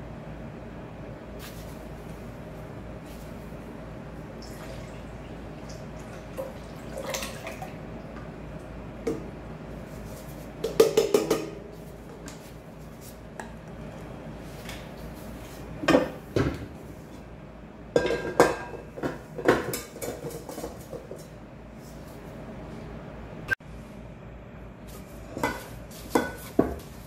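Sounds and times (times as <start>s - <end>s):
kitchenware clinking on metal bowl: 18.0s - 21.2s.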